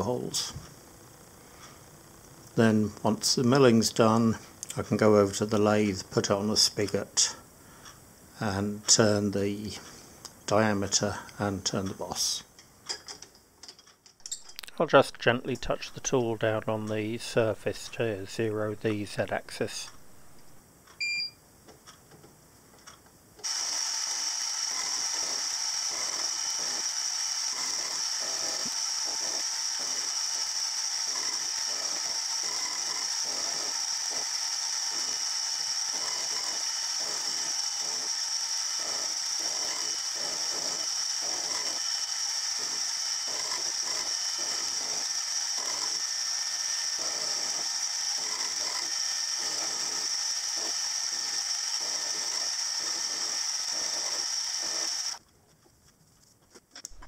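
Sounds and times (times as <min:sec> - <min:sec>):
milling machine whining: 0:23.4 - 0:55.2.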